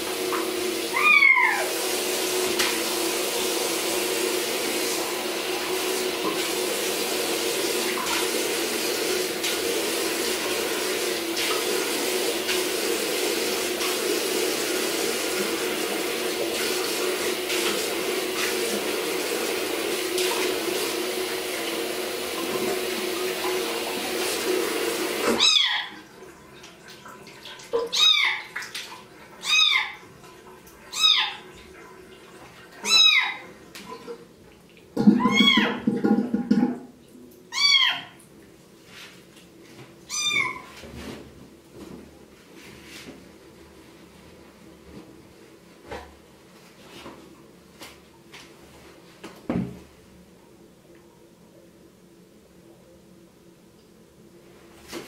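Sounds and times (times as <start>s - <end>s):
faucet water splashing into sink: 0.0s - 37.4s
kitten meowing: 0.9s - 1.7s, 25.4s - 25.9s, 27.9s - 28.4s, 32.8s - 33.4s, 35.2s - 35.8s, 37.5s - 38.1s, 40.1s - 40.7s.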